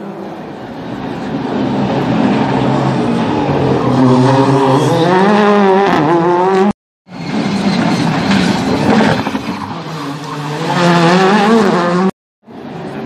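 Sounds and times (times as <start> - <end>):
rally car engine at high revs: 3.2 - 6.8, 8.4 - 12.1.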